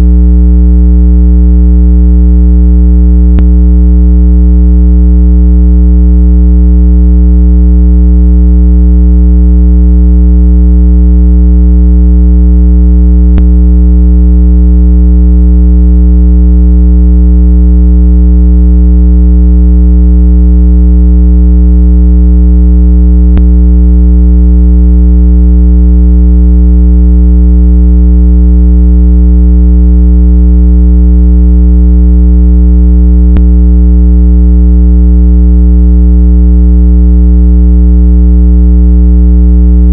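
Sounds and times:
low buzzy electronic tone: 0.0 - 0.2, 3.2 - 4.0, 13.2 - 13.6, 23.3 - 23.6, 33.3 - 33.5.

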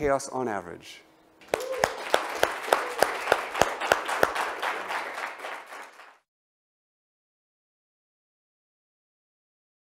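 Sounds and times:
sharp hand claps: 1.4 - 6.2
audience applauding: 1.4 - 6.3.

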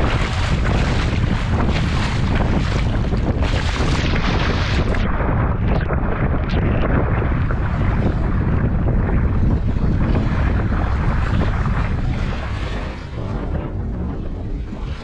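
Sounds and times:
water splashing against kayak hull: 0.0 - 15.0
wind buffeting microphone: 0.0 - 15.0.

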